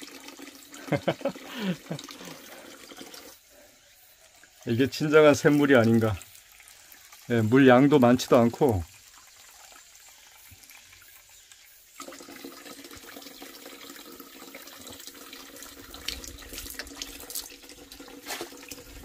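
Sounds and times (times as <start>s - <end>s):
spring water running: 0.0s - 19.0s.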